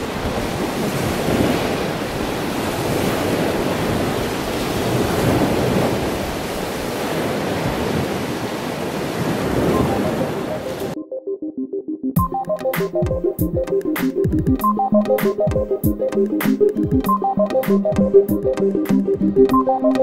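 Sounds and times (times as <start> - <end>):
ocean surf breaking on beach: 0.0 - 11.0.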